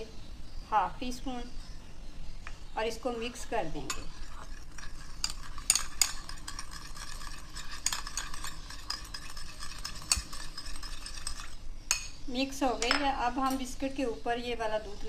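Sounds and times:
metal spoon stirring in a bowl: 3.3 - 12.2.

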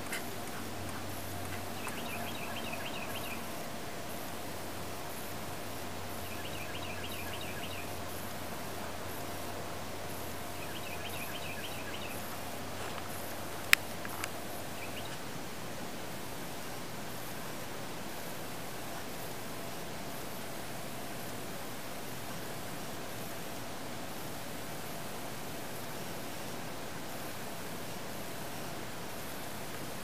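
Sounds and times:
faint hum: 0.0 - 30.0
small bird chirping: 1.5 - 3.5, 6.2 - 7.9, 10.6 - 12.3, 14.7 - 15.2.

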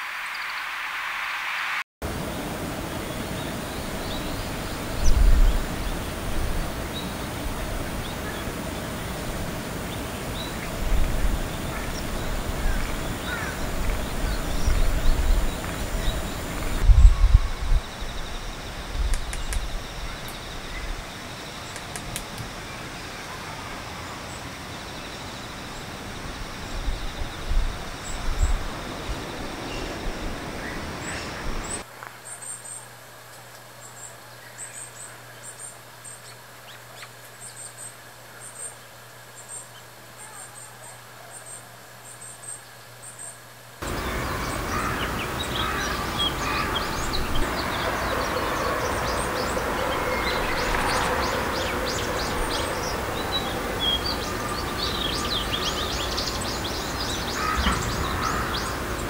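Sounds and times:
noisy background: 43.8 - 59.0.

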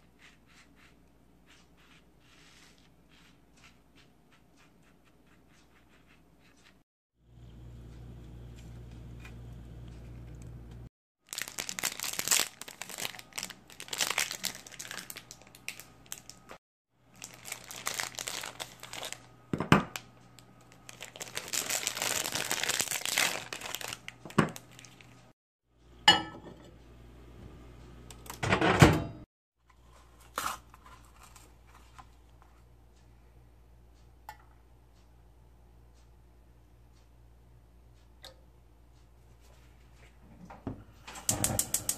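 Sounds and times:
low steady hum: 7.2 - 10.9
wrapper crinkling and tearing: 11.2 - 16.5, 17.1 - 19.3, 20.7 - 25.2.

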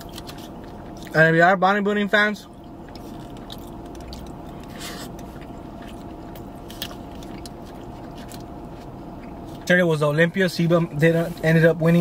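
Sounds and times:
man chewing food: 0.0 - 1.2, 2.4 - 9.7
steady low hum: 0.0 - 12.0.

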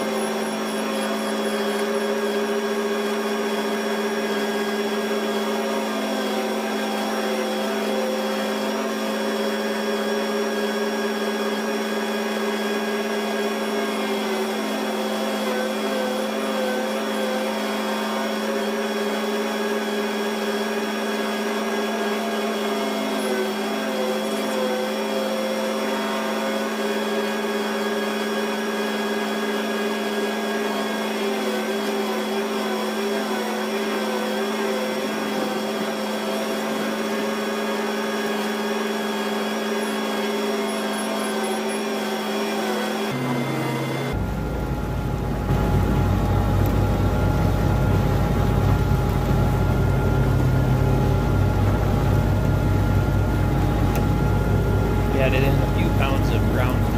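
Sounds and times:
farm machinery engine droning: 38.4 - 56.9.

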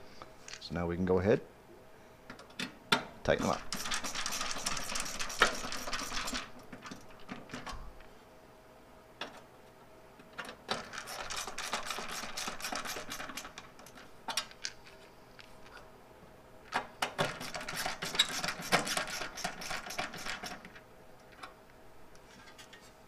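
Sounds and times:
screwdriver clicking and scraping: 3.4 - 6.4, 17.2 - 20.8.

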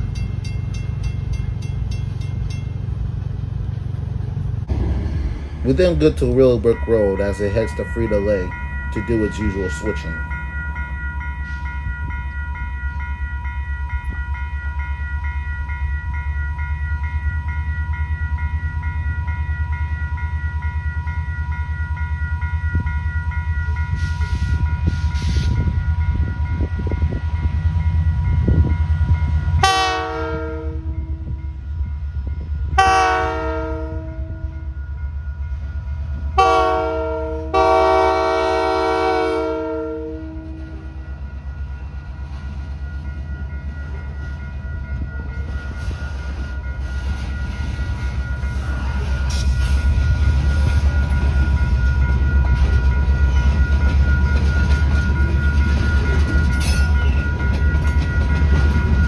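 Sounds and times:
railroad crossing bell ringing: 0.0 - 4.6, 5.2 - 59.0
diesel locomotive engine rumble: 0.0 - 59.0
locomotive horn blasts: 29.6 - 31.2, 32.8 - 34.5, 36.4 - 40.8.

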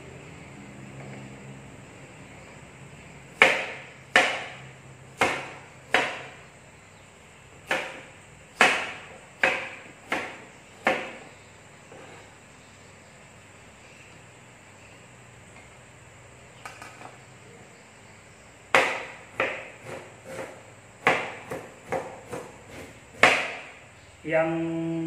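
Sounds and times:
kitchen knife chopping: 3.3 - 4.6, 5.2 - 6.4, 7.6 - 11.2, 18.7 - 23.8.

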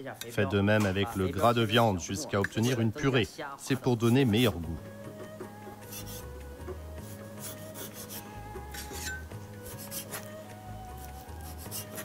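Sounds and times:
soft background music: 0.0 - 12.0
cleaver slicing meat fat on wood: 5.8 - 6.3, 7.0 - 12.0.

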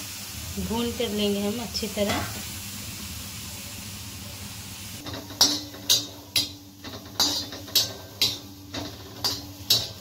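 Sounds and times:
fish sizzling on griddle: 0.0 - 10.0
metal spatula scraping pan: 5.0 - 10.0.

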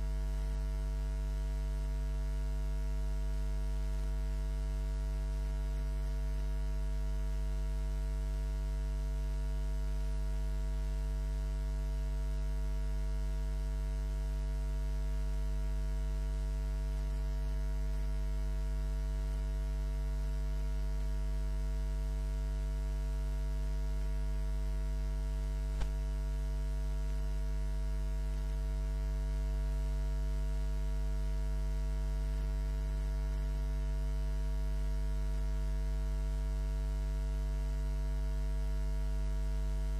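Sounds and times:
electrical mains hum: 0.0 - 10.9, 13.6 - 30.7
faint click: 25.8 - 26.0.

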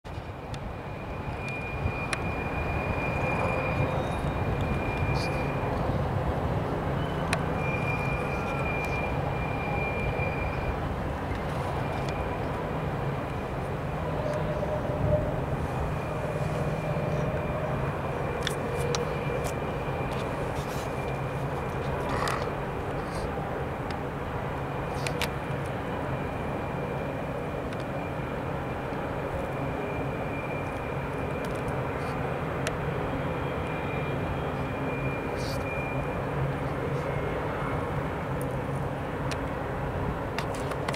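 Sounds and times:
diesel locomotive engine drone: 0.1 - 40.9
high whine: 0.1 - 40.9
rushing train noise: 0.1 - 40.9
thin high squeal: 1.1 - 6.0, 7.0 - 10.8, 33.4 - 36.2.

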